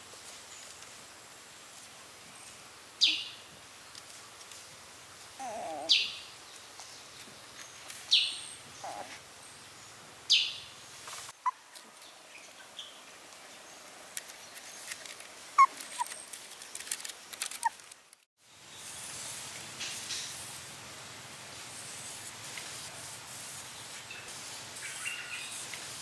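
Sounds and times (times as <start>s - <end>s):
puppies squealing and whimpering: 8.8s - 9.1s
wicker basket creaking: 14.3s - 18.3s.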